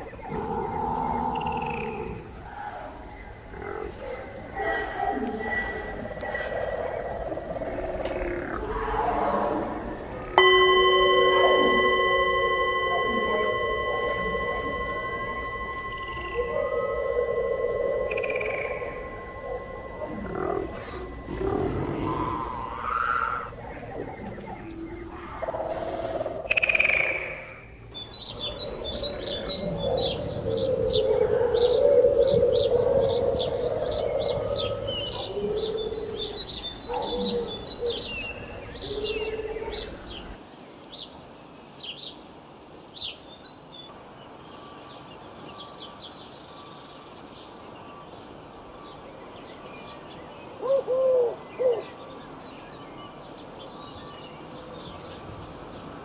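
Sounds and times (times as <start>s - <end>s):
louder lower bird calls: 4.4s - 40.4s
low rumbling noise: 5.8s - 26.6s
small birds chirping: 9.9s - 41.2s.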